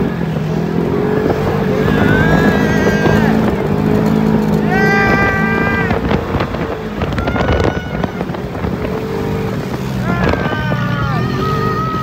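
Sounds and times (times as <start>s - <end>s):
vehicle engine hum: 0.0s - 12.0s
wind noise on microphone: 0.0s - 12.0s
high-pitched scream: 1.7s - 3.6s, 4.6s - 6.0s, 7.1s - 8.4s, 10.0s - 12.0s.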